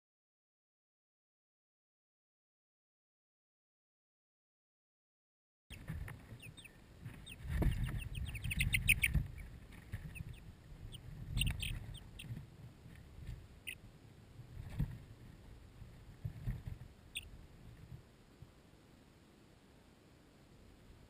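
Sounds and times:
chicks peeping: 0:05.7 - 0:13.8, 0:16.2 - 0:17.3.

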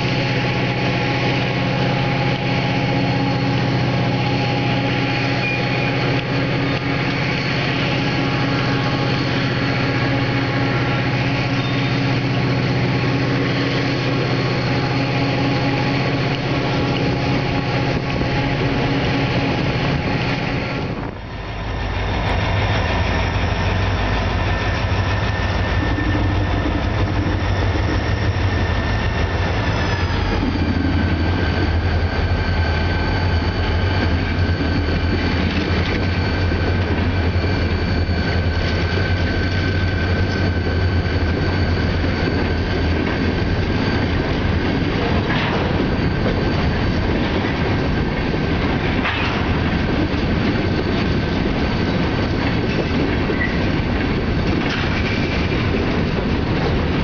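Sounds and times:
deep rumble of locomotives: 0:00.0 - 0:57.0
diesel engines humming: 0:00.0 - 0:57.0
freight cars rolling: 0:00.0 - 0:57.0.

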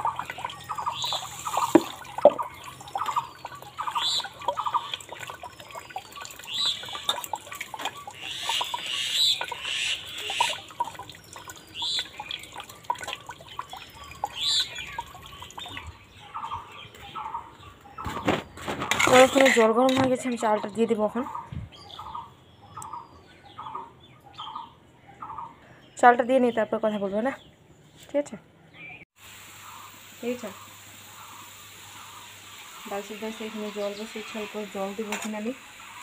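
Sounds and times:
hands washing rice in water: 0:00.0 - 0:15.9
water pouring from can: 0:00.0 - 0:15.9, 0:18.2 - 0:20.1.

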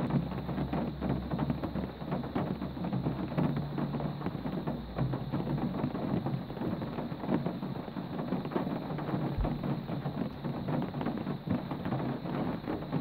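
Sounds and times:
constant low rumble: 0:00.0 - 0:13.0
steady rain pattering: 0:00.0 - 0:13.0.

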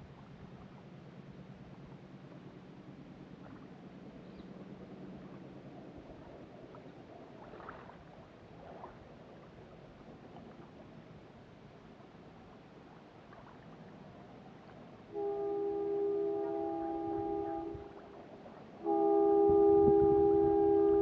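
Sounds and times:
low steady hum: 0:00.0 - 0:21.0
small waves lapping on rocks: 0:06.0 - 0:15.5.

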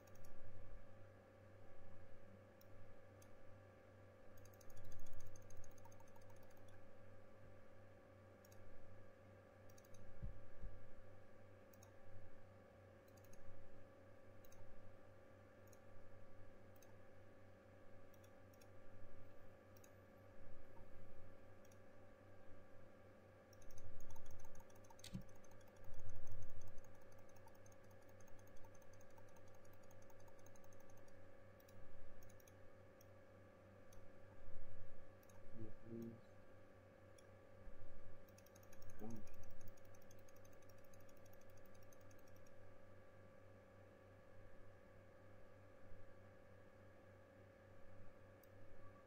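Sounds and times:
computer mouse clicking: 0:00.0 - 0:00.4, 0:02.6 - 0:03.4, 0:04.3 - 0:06.9, 0:08.4 - 0:08.7, 0:09.7 - 0:10.4, 0:11.7 - 0:12.0, 0:13.0 - 0:13.6, 0:14.4 - 0:14.7, 0:15.6 - 0:15.9, 0:16.7 - 0:17.0, 0:18.1 - 0:18.8, 0:19.7 - 0:20.0, 0:21.6 - 0:21.9, 0:23.5 - 0:33.2, 0:35.2 - 0:36.2, 0:38.2 - 0:42.6
low hum: 0:00.0 - 0:49.0
keyboard clicking: 0:04.4 - 0:06.8, 0:09.7 - 0:10.1, 0:23.5 - 0:32.6, 0:38.3 - 0:42.5.

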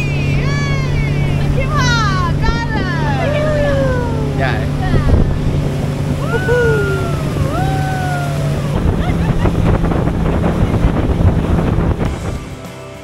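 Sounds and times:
wind buffeting microphone: 0:00.0 - 0:12.5
motorboat engine running: 0:00.0 - 0:13.0
water rushing past hull: 0:00.0 - 0:13.0.

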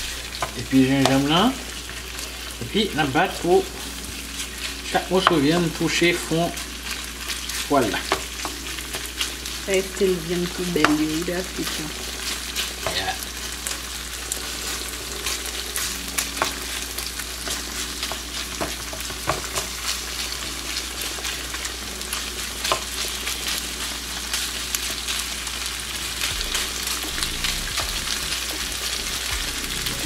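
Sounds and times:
meat sizzling in a frying pan: 0:00.0 - 0:30.0
sharp frying pops: 0:00.0 - 0:30.0
wooden spoon stirring: 0:10.9 - 0:30.0.

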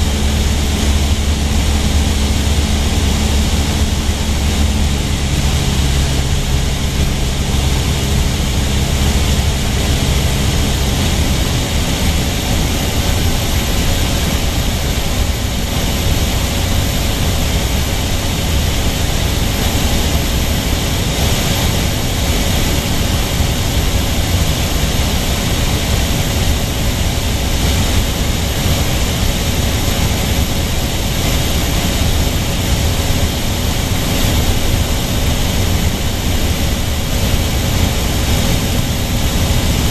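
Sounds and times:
propeller airplane cabin drone: 0:00.0 - 0:39.9.

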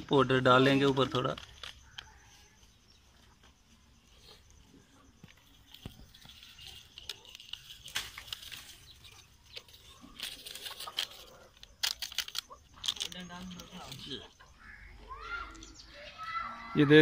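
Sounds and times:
plastic sachet crinkling: 0:05.6 - 0:14.1.

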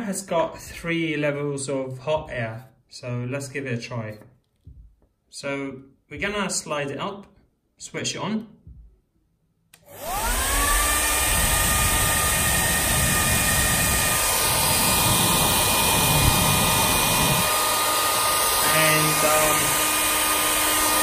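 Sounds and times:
hair dryer running: 0:09.8 - 0:21.0.

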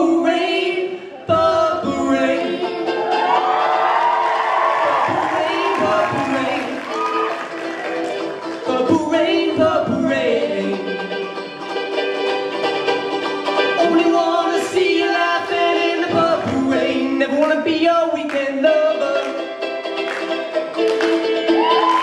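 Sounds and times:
man singing: 0:00.0 - 0:02.9, 0:04.9 - 0:07.2, 0:08.2 - 0:11.3, 0:13.7 - 0:19.5
ukuleles strummed: 0:00.0 - 0:22.0.

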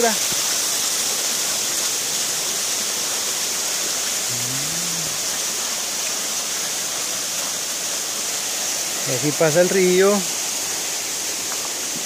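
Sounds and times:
stream water flowing: 0:00.0 - 0:12.0
person humming: 0:04.3 - 0:05.4.

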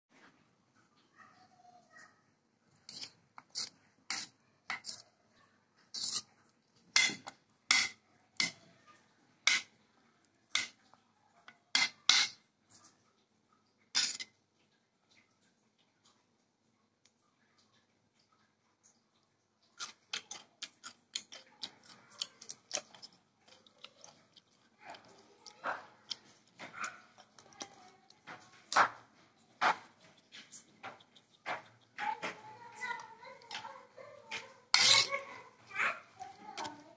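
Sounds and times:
metal spoon scraping a bowl: 0:02.8 - 0:05.0, 0:05.9 - 0:06.3, 0:07.0 - 0:08.6, 0:09.5 - 0:09.7, 0:10.5 - 0:10.8, 0:11.7 - 0:12.4, 0:14.0 - 0:14.3, 0:34.3 - 0:35.4
metal spoon tossing salad in bowl: 0:02.8 - 0:05.0, 0:05.9 - 0:06.3, 0:06.9 - 0:08.6, 0:09.4 - 0:09.7, 0:10.5 - 0:10.8, 0:11.7 - 0:12.4, 0:14.0 - 0:14.3, 0:19.8 - 0:29.0, 0:29.6 - 0:35.6.

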